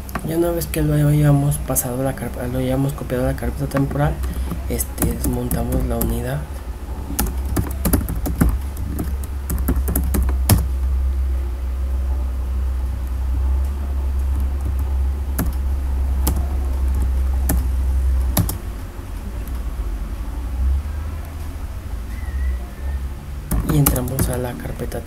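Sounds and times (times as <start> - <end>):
steady low hum: 0.0 - 25.0
keyboard keys clicking: 3.6 - 6.2, 7.1 - 10.8, 14.1 - 18.8, 23.5 - 24.6.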